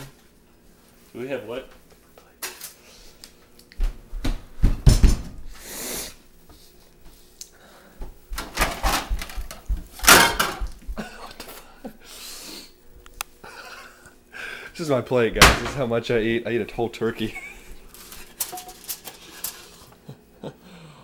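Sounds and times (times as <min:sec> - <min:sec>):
knocks and clatter in cupboard: 0:08.4 - 0:10.7.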